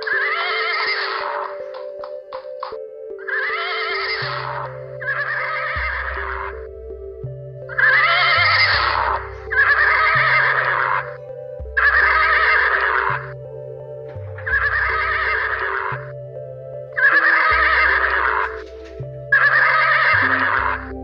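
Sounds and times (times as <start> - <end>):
horse whinny: 0.0 - 1.6
background music with bass line: 1.2 - 21.0.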